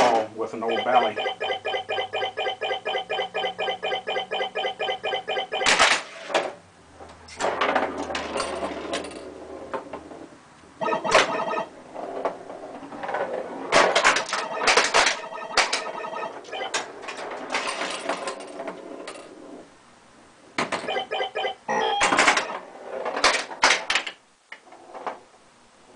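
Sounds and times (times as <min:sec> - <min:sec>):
electronic scoring tones: 0:00.7 - 0:05.8, 0:10.8 - 0:11.7, 0:14.3 - 0:16.8, 0:20.9 - 0:22.4
pinball clacking off flippers: 0:13.7 - 0:18.6.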